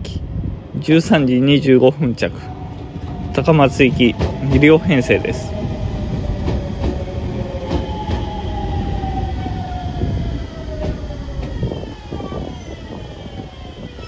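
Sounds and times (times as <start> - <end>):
train wheels rumbling on rails: 0.0 - 14.0
train whine falling in pitch: 2.4 - 14.0.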